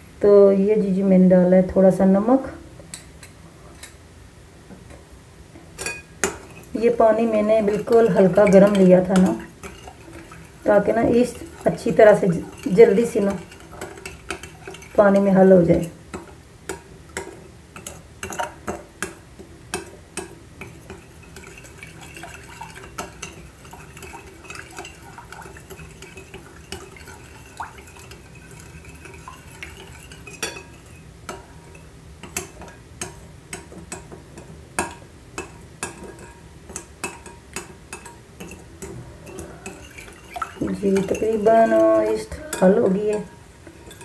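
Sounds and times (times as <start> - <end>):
spoon clinking against glass bowl: 7.6 - 10.5, 11.3 - 15.3, 16.7 - 34.1, 34.8 - 44.0.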